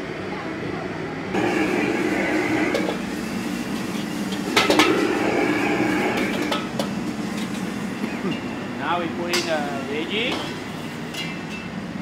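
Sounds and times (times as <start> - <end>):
high-heat cooking rush: 1.2 - 12.0
spatula scraping a wok: 1.4 - 7.7.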